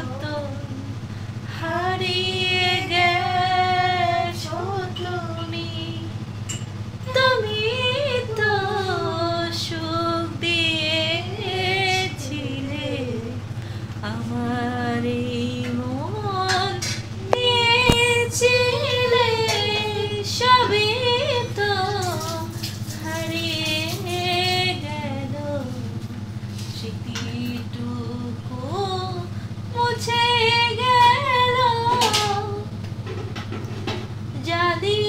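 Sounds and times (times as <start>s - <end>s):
steady low hum: 0.0s - 35.0s
woman singing slowly: 7.0s - 26.2s, 26.8s - 32.7s.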